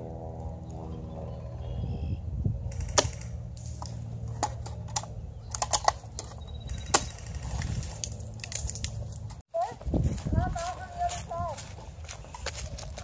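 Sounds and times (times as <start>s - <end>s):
steady low rumble: 0.0s - 13.0s
airsoft gun shots: 2.7s - 3.8s.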